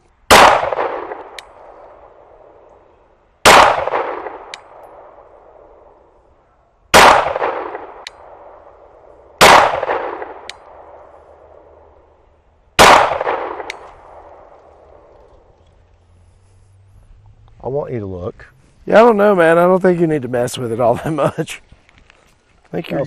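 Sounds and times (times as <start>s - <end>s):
pistol shots: 0.3s - 2.4s, 3.4s - 5.2s, 6.9s - 8.8s, 9.4s - 11.6s, 12.8s - 15.1s.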